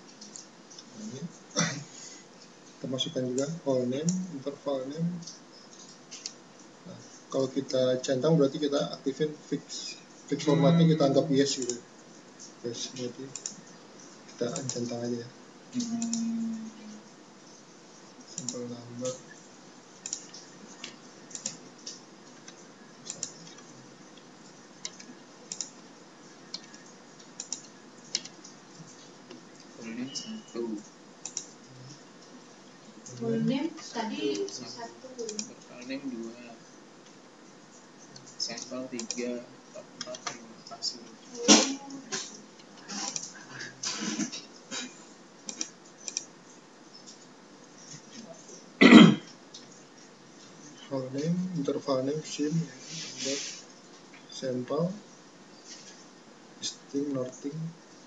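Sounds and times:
faint steady hiss: 0.0 - 58.0
keyboard typing: 9.8 - 15.2, 17.5 - 32.0, 35.2 - 35.7, 38.0 - 40.9, 45.4 - 46.3
mouse clicks: 20.0 - 23.7, 26.5 - 28.4, 45.5 - 46.3.

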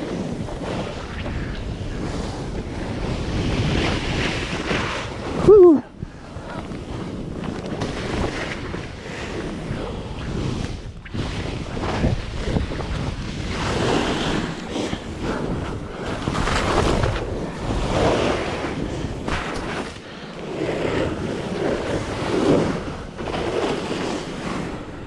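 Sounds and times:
snowboard sliding through snow: 0.0 - 25.0
wind on microphone: 0.0 - 25.0
person yelling: 5.4 - 5.9.

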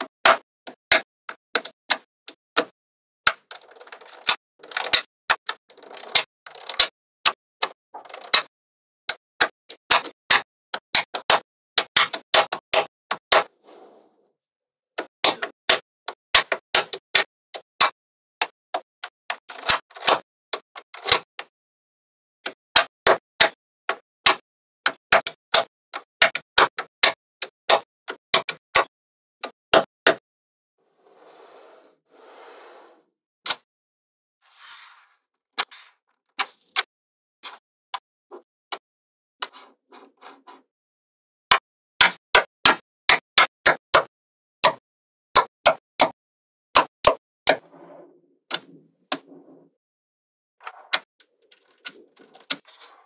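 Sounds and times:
balls sliding rustle: 31.0 - 33.0, 34.5 - 36.0.

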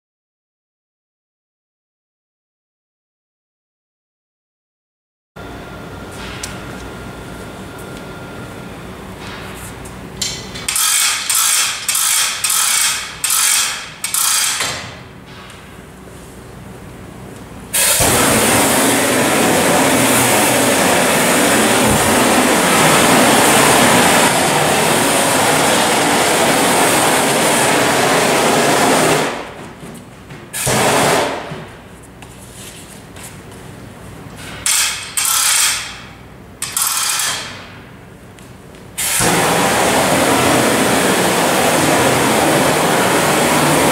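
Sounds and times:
hose reel ratchet clicks: 10.7 - 14.6, 36.6 - 37.4
gas burner rushing: 17.7 - 29.6, 30.6 - 31.5, 39.0 - 43.9.

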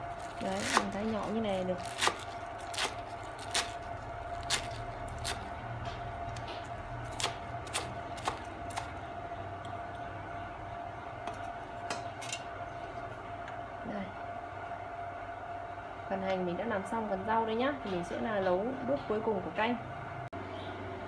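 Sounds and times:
faint hum: 0.0 - 21.0
knife chopping on wooden board: 4.5 - 8.9.

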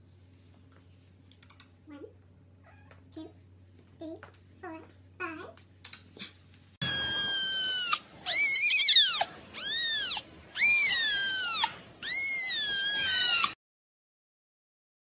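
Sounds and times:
kitten mewing: 6.8 - 13.6.

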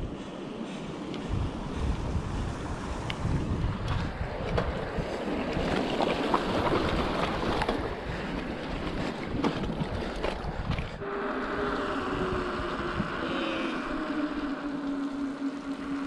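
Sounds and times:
wind noise on microphone: 0.0 - 16.0
bike clicks and knocks: 3.8 - 7.9, 9.3 - 11.0.

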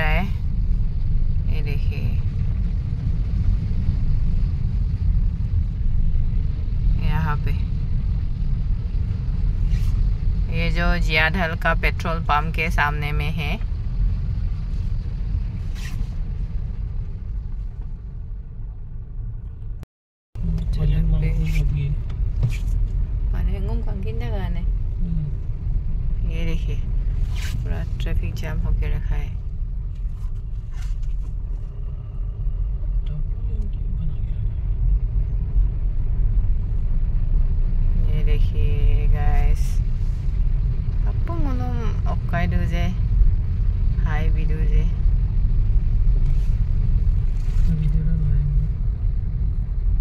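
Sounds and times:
car engine and road rumble: 0.0 - 50.0
faint rustle: 46.1 - 48.2.

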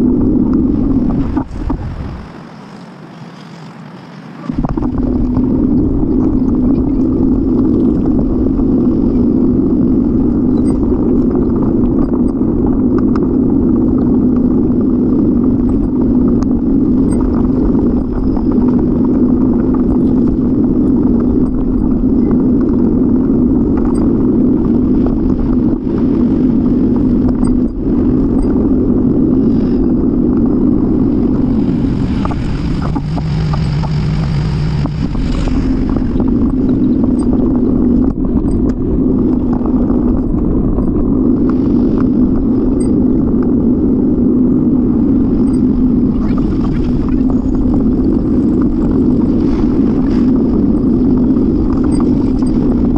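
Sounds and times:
wind noise: 0.0 - 3.5, 4.3 - 52.9
low hum with hiss: 0.0 - 52.9
road and traffic noise: 1.0 - 5.2, 31.1 - 38.9.

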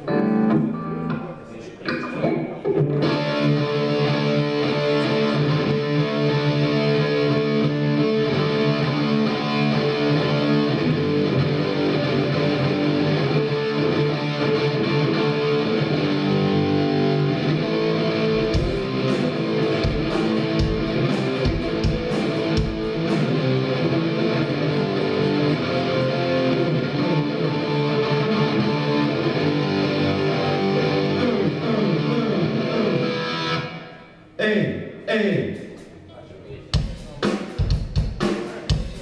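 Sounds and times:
electric guitars playing riff: 0.0 - 34.2
drum hits: 18.4 - 23.5, 36.8 - 39.0.

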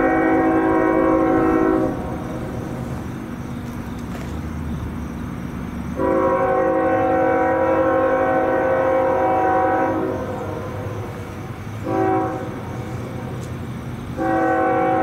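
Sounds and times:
locomotive air horn: 0.0 - 2.6, 6.0 - 11.2, 11.8 - 13.4, 14.2 - 15.0
train low rumble: 0.0 - 15.0.

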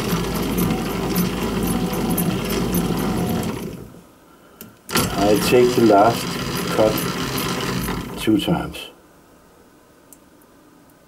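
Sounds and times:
lathe running: 0.0 - 4.0, 4.9 - 8.6.

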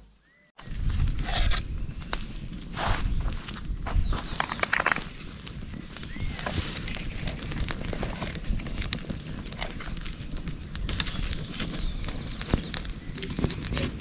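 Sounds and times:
campfire crackling and popping: 0.6 - 14.0.

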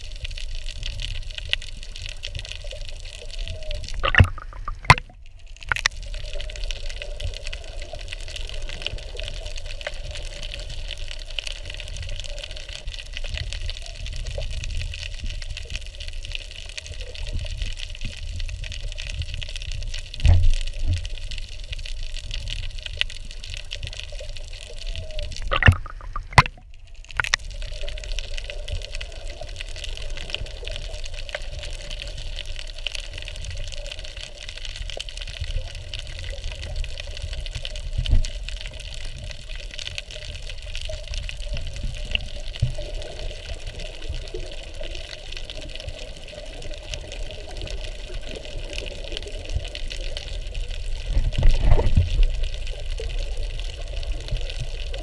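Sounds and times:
muffled underwater wash: 0.0 - 55.0
sharp clicks: 3.9 - 6.0, 25.3 - 26.6, 27.2 - 27.4.

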